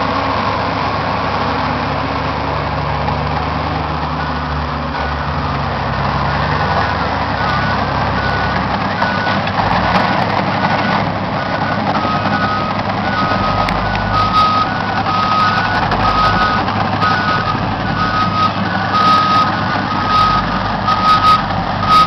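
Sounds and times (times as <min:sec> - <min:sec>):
heavy diesel engines running: 0:00.0 - 0:22.0
backup alarm beeping: 0:11.7 - 0:22.0.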